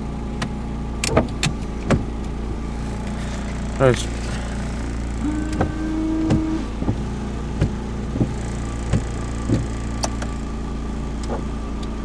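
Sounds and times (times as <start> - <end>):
car engine idling: 0.0 - 12.0
windshield wipers sweeping: 1.0 - 12.0
short steady whine: 2.4 - 10.6
wiper thump: 4.4 - 10.3.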